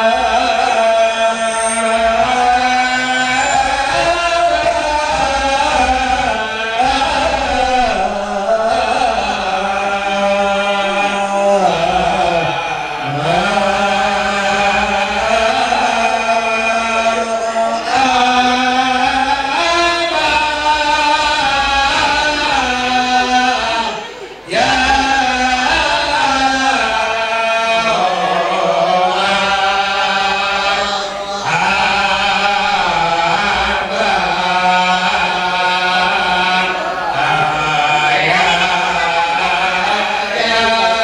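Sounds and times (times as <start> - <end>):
group chanting devotional verses: 0.0 - 41.0.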